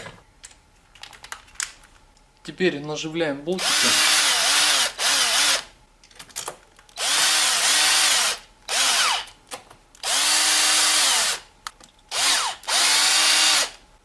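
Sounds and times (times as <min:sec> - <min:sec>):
cordless drill motor whine: 0:03.6 - 0:05.7, 0:07.0 - 0:09.3, 0:10.0 - 0:11.4, 0:12.1 - 0:13.8.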